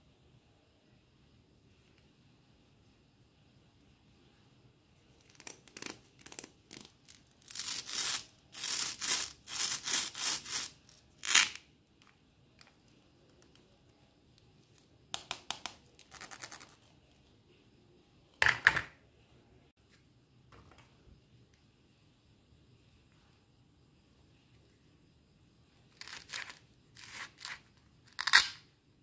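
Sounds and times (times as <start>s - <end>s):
velcro rasping apart: 5.2s - 11.7s, 15.9s - 16.8s, 26.0s - 28.6s.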